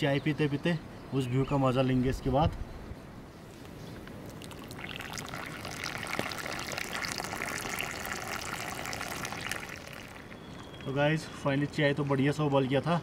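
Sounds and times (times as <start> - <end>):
tea bubbling at a boil: 4.0 - 11.2.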